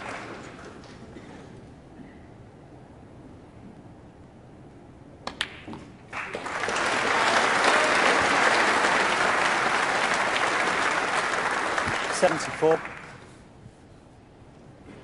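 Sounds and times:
crowd applause: 0.0s - 1.2s, 6.1s - 13.3s.

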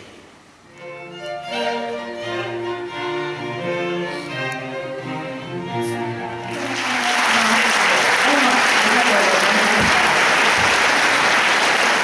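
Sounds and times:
string quartet playing: 0.7s - 7.6s.

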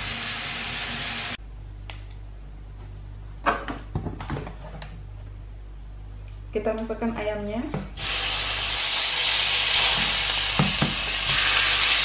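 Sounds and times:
hot oil sizzling in a pan: 0.0s - 1.4s, 8.0s - 12.0s.

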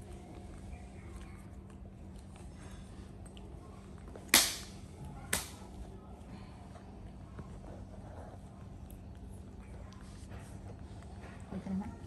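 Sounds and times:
hand claps: 4.3s - 5.6s.

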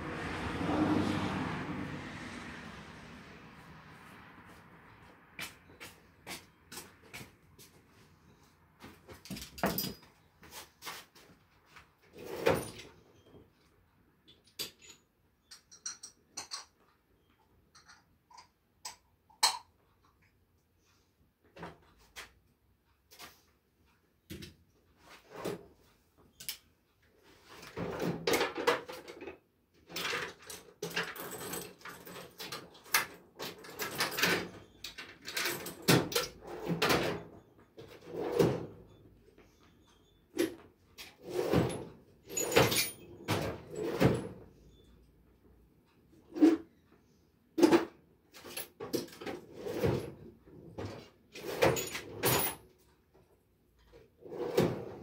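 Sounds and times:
handling knocks and clatters: 8.8s - 11.3s.

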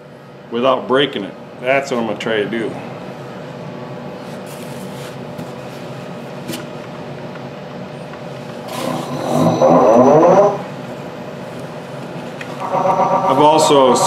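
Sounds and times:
wood lathe running: 12.5s - 14.0s.

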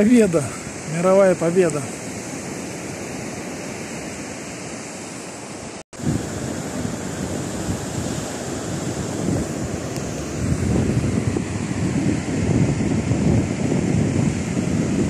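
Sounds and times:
ocean surf washing on beach: 0.0s - 15.0s
wind buffeting microphone: 6.0s - 15.0s.

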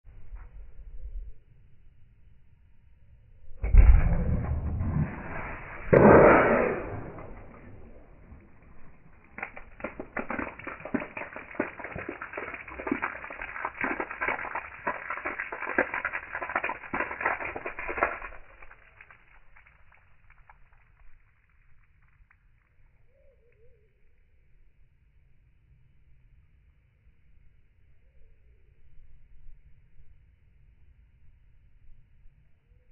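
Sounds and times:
water spray splashing: 7.1s - 20.4s.

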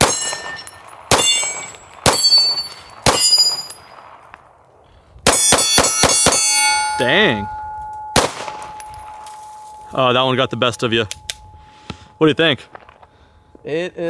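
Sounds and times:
steel plates ringing: 0.0s - 3.9s, 5.3s - 12.7s
pistol shots: 0.0s - 4.3s, 5.2s - 6.7s, 8.1s - 9.4s.

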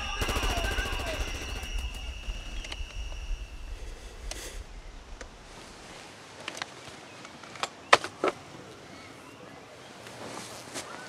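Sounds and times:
sharp clicks: 0.0s - 5.6s
low rumble: 0.0s - 6.3s.

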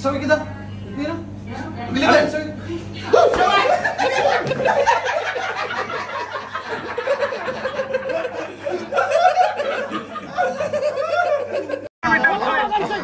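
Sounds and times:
people laughing: 3.0s - 13.0s.

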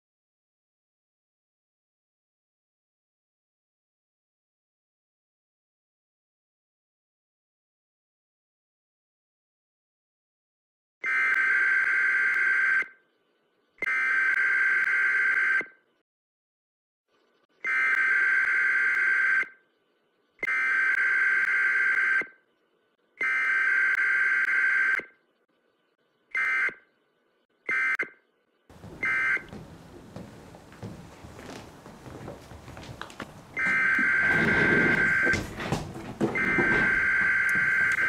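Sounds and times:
electronic alarm buzzer beeping: 29.0s - 29.5s, 33.6s - 35.5s, 36.3s - 38.0s.

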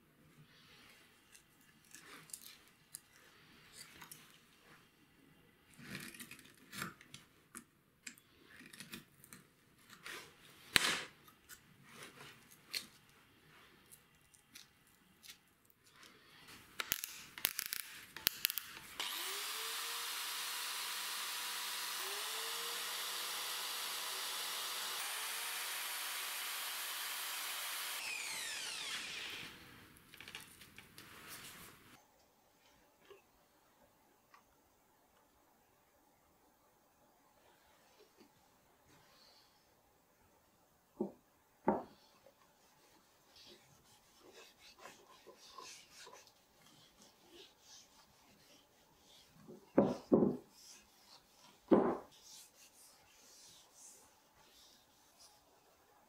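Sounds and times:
power drill spinning sanding drum: 18.5s - 29.9s.

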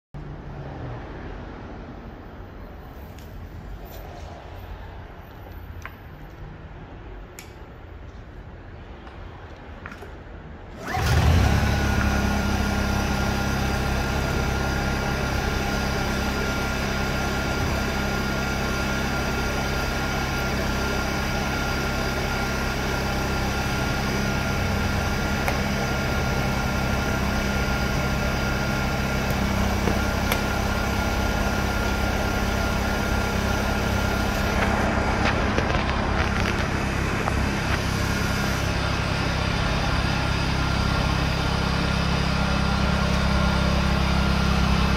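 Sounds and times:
generator engine running: 10.7s - 44.9s.

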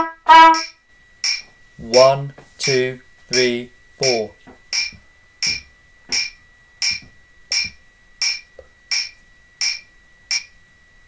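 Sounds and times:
faint high-pitched tone: 0.0s - 0.8s
metronome clicks: 0.0s - 10.6s.

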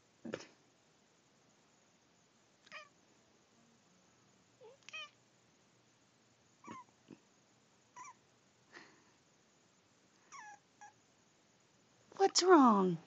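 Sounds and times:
puppy whimpering: 8.0s - 8.2s.

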